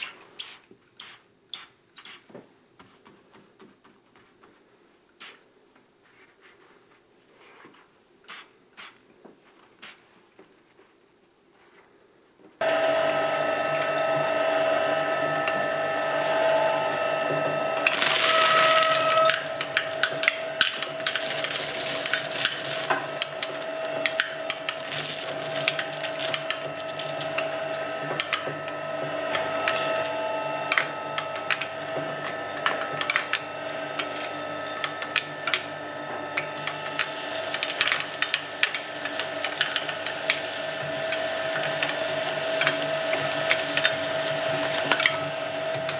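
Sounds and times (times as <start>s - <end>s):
shredder motor whine: 12.6s - 45.9s
paper crackling in shredder: 17.8s - 28.4s, 36.4s - 45.9s.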